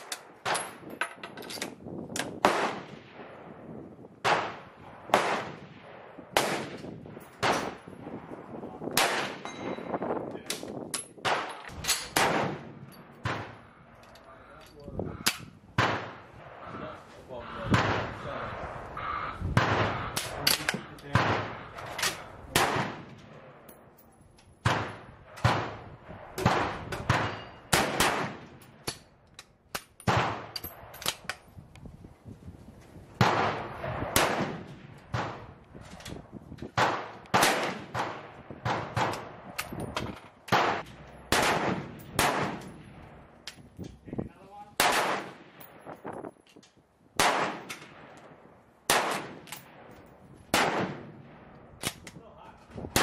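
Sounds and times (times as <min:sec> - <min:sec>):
rifle shots echoing: 0:02.3 - 0:03.6, 0:04.2 - 0:08.3, 0:08.9 - 0:09.9, 0:11.2 - 0:13.8, 0:15.2 - 0:16.9, 0:17.5 - 0:23.7, 0:24.6 - 0:29.1, 0:29.8 - 0:31.3, 0:33.2 - 0:35.6, 0:36.8 - 0:43.4, 0:44.7 - 0:45.8, 0:47.2 - 0:52.1.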